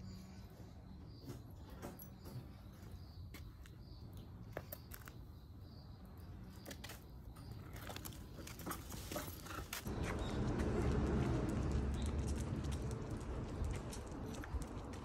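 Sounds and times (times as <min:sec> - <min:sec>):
low outdoor rumble: 0:09.8 - 0:15.0.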